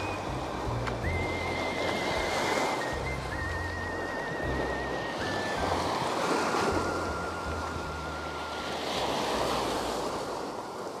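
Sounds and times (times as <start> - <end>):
wind rumbling on microphone: 0.0 - 11.0
small waves breaking on beach: 4.0 - 11.0.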